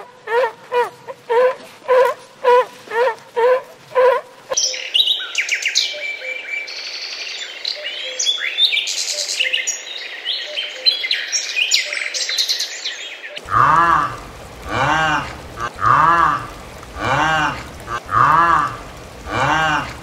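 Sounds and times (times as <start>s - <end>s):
sea lion barking: 0.0s - 4.2s, 13.4s - 20.0s
songbirds chirping and trilling: 4.0s - 20.0s.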